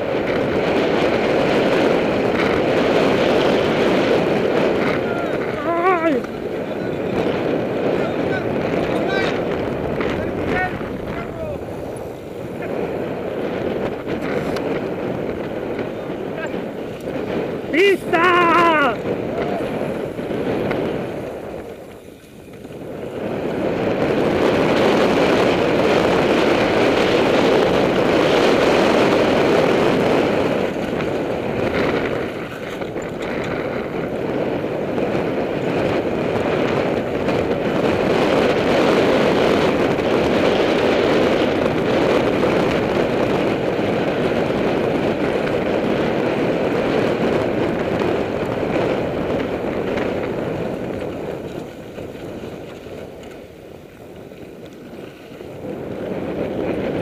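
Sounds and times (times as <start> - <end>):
bike rattling: 0.0 - 57.0
bike tyres on loose dirt: 0.0 - 57.0
wind on microphone: 0.0 - 57.0.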